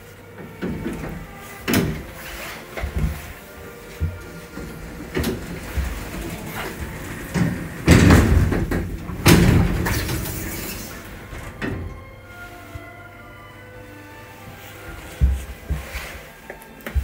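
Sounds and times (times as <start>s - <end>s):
metal elevator doors banging and rattling: 0.4s - 12.3s.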